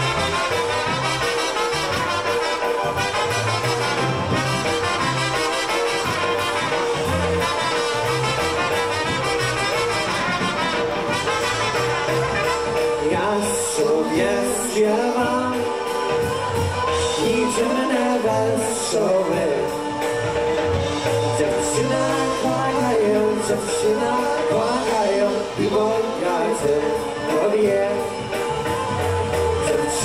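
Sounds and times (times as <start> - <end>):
bouncing bass line: 0.0 - 13.5
brass playing polka tune: 0.0 - 30.0
steady drum beat: 0.0 - 30.0.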